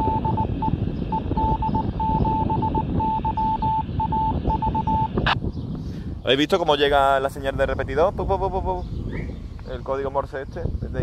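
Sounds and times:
morse code beep: 0.0 - 5.4.

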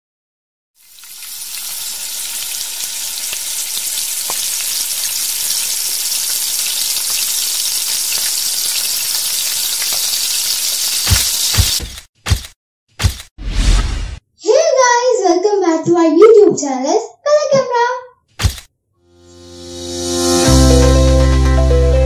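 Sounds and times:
ghee sizzling in a pan: 0.8 - 11.8.

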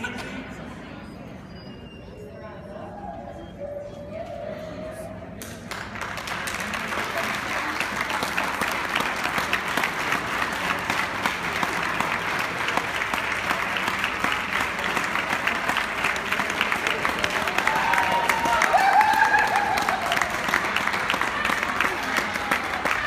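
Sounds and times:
audience applauding: 5.7 - 23.0.

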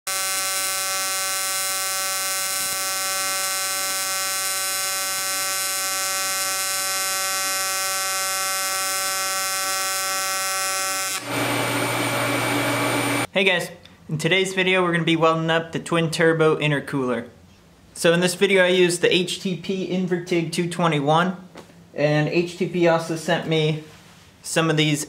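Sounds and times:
welding arc buzzing: 0.1 - 13.3.

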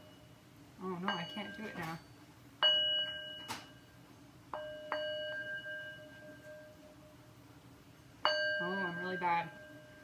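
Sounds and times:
singing bowl struck by mallet: 4.6 - 6.8.

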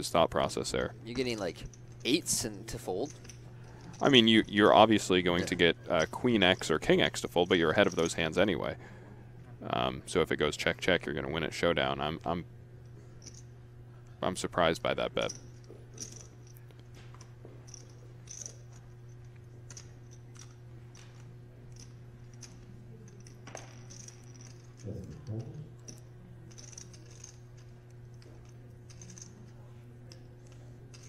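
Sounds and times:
steady low hum: 0.0 - 31.0
poker chips clicking: 19.7 - 29.4.

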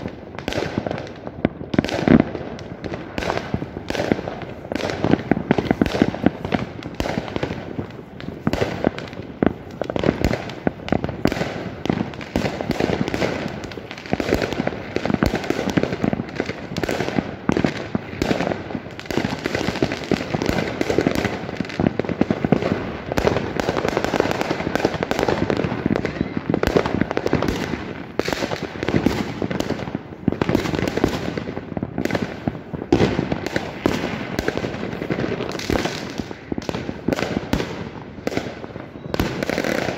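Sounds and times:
fireworks bangs and pops: 0.0 - 39.9.

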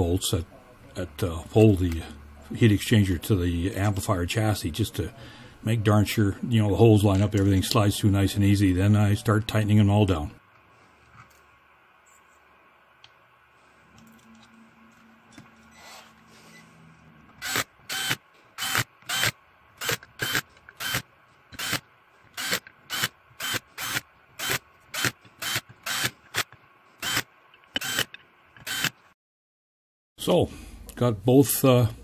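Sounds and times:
cordless drill short bursts: 17.4 - 21.0, 21.6 - 21.8, 22.4 - 29.0.

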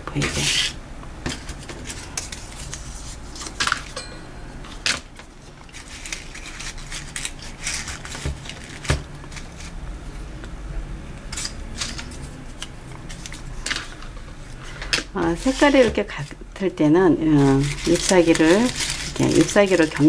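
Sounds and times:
paper crinkling and rustling: 1.3 - 4.0, 4.9 - 9.8, 11.3 - 16.4, 17.2 - 20.0.

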